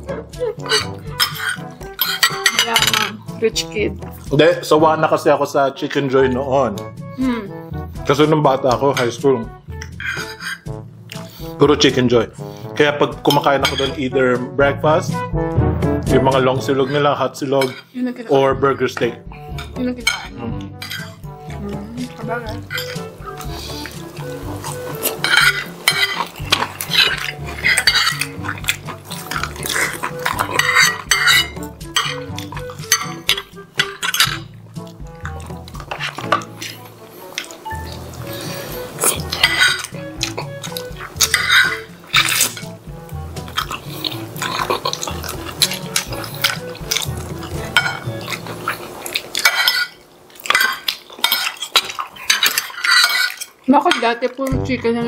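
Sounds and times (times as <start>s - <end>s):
cutlery clinking on plates: 0.6s - 3.2s, 13.3s - 14.0s, 19.0s - 21.2s, 22.5s - 36.8s, 39.1s - 42.8s, 43.5s - 54.2s.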